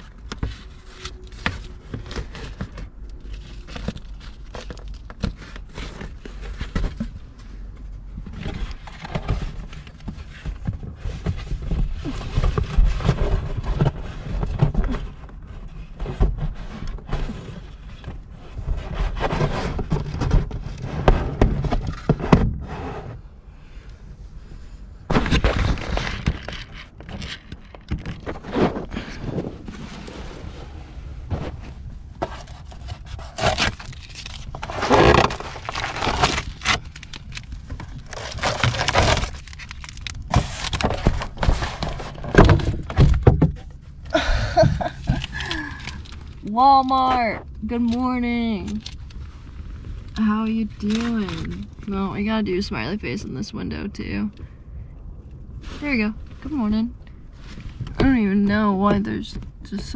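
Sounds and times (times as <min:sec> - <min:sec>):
bedding rustling and thumping: 0:25.1 - 0:36.6, 0:40.0 - 0:45.4.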